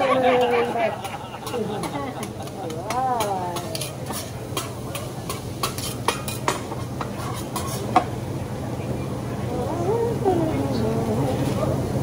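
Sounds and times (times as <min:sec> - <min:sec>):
food sizzling on griddle: 0:01.0 - 0:08.3
metal spatulas scraping steel plate: 0:03.2 - 0:08.1.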